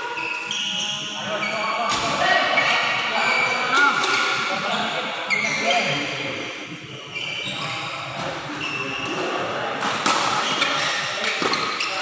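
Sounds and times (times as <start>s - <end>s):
shoes squeaking on court: 0.1s - 2.0s, 7.1s - 9.2s, 10.4s - 12.0s
rackets hitting shuttlecock: 9.0s - 12.0s.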